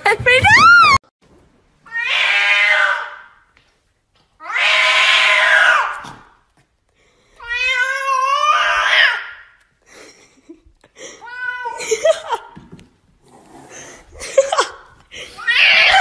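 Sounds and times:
cat meowing: 4.4s - 6.0s.

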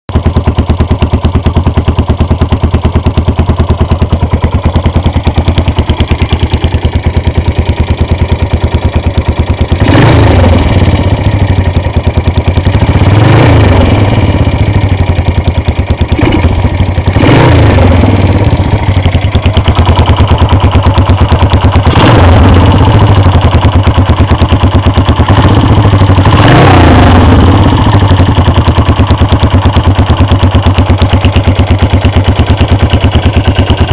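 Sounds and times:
motorcycle engine idling: 0.1s - 33.9s
engine revving: 9.5s - 15.2s, 16.0s - 33.9s.

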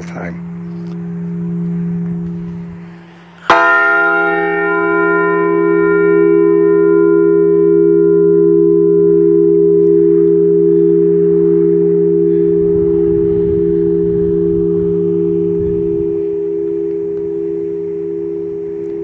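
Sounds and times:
bell clanging and ringing: 3.4s - 5.4s.

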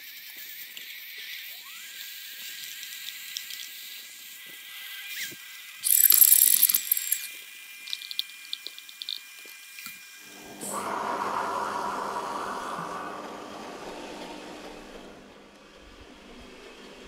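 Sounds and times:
blender motor whining: 4.0s - 9.2s.

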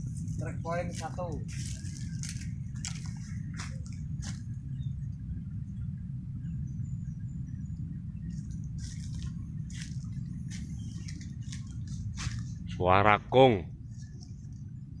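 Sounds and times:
leaves and branches rustling: 0.0s - 5.2s, 8.1s - 13.2s, 13.8s - 14.8s
low rumble: 0.0s - 15.0s.

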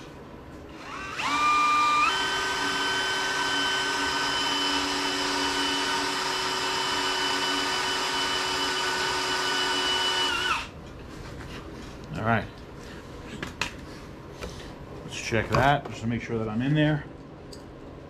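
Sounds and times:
electric drill whining: 0.7s - 10.7s.

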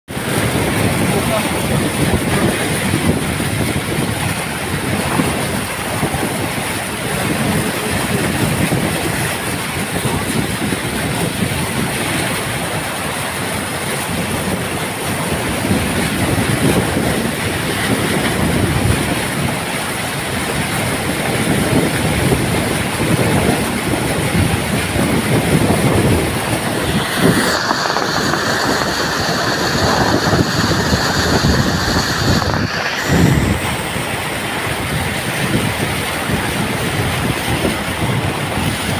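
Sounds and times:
car driving through floodwater: 0.1s - 38.9s.

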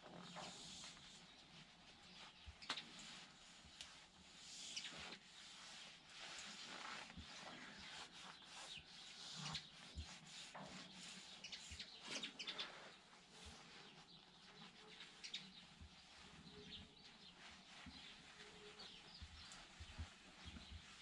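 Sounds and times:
quiet outdoor ambience: 0.0s - 21.0s
small bird chirps: 3.8s - 5.8s, 6.6s - 21.0s.

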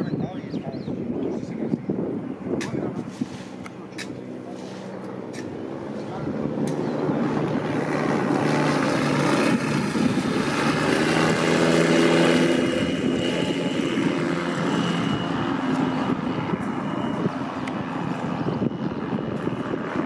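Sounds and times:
aircraft engine and propeller: 0.0s - 20.0s.

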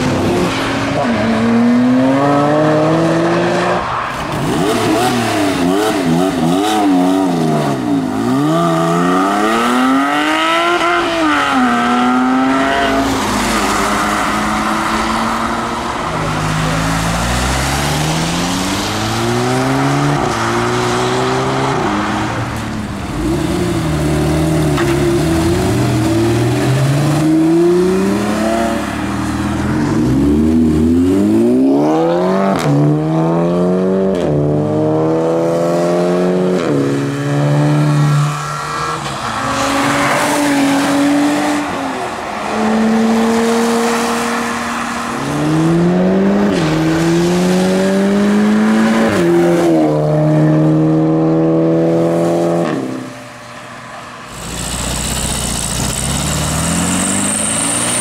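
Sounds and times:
sports car engines revving: 0.0s - 53.5s, 54.2s - 58.0s
tyre squeal: 56.6s - 58.0s.

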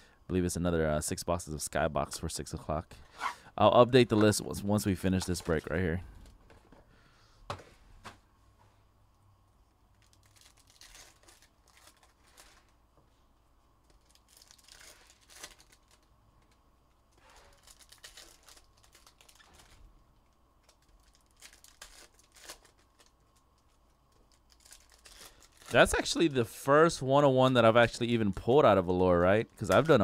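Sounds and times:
cards rustling: 4.0s - 5.9s, 17.2s - 19.8s, 20.6s - 26.4s, 27.4s - 30.0s
wrappers tearing and crinkling: 9.9s - 12.8s, 13.9s - 16.5s, 17.1s - 19.9s, 20.6s - 26.2s.

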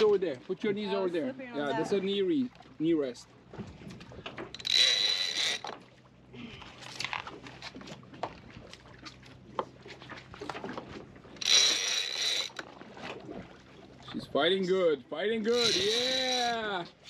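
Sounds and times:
fishing reel drag buzzing: 4.6s - 5.8s, 11.4s - 12.7s, 15.5s - 16.6s.

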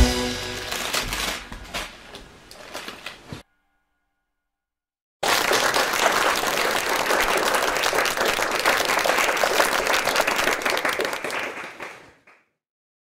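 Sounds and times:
crowd applauding: 5.2s - 12.4s.

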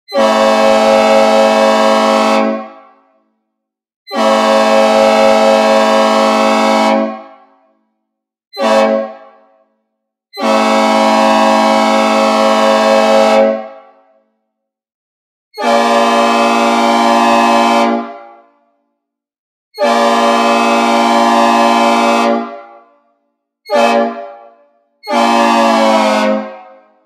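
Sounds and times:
locomotive air horn blasts: 0.1s - 3.1s, 4.1s - 7.5s, 8.6s - 9.7s, 10.4s - 14.1s, 15.6s - 18.5s, 19.8s - 22.8s, 23.7s - 24.4s, 25.0s - 27.0s.

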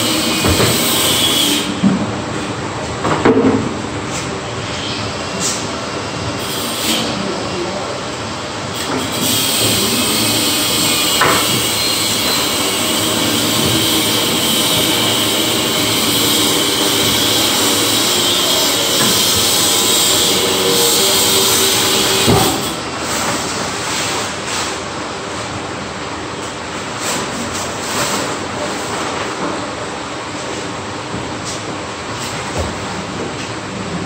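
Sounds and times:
electric concrete saw running: 9.0s - 22.9s.

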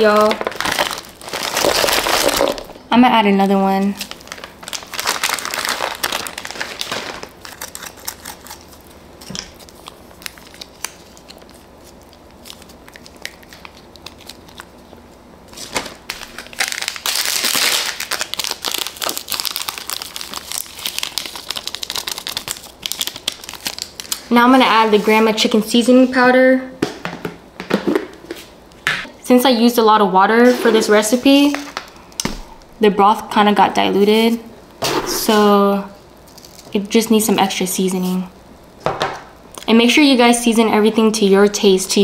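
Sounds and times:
plastic wrappers crinkling and tearing: 0.0s - 2.8s, 3.7s - 25.1s, 36.2s - 36.8s.

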